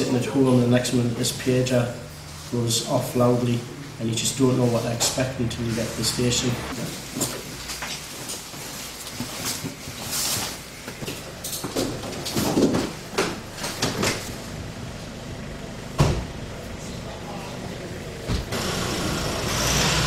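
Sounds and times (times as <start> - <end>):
doors opening and shutting: 11.2 - 14.4, 18.2 - 20.0.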